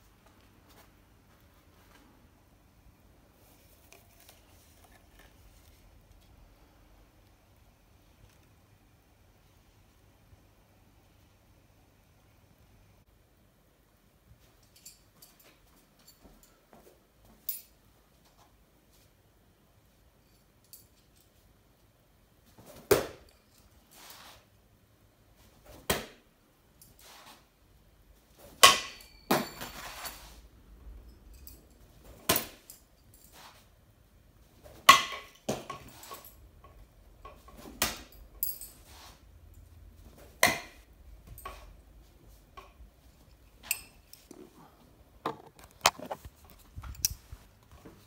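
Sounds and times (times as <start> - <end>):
metal spikes clacking on tube target: 28.6 - 29.7, 34.8 - 38.6.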